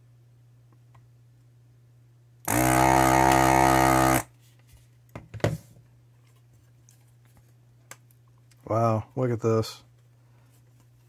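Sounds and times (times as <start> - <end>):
desoldering vacuum pump buzzing: 2.4 - 4.3.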